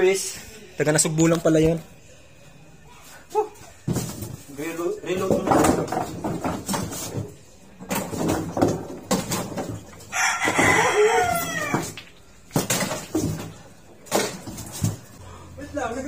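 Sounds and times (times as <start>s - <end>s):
rooster crowing: 10.1s - 12.0s.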